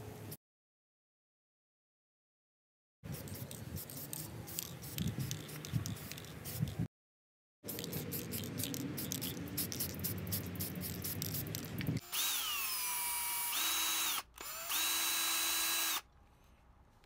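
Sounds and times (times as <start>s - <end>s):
cordless drill boring steel: 12.0s - 16.1s.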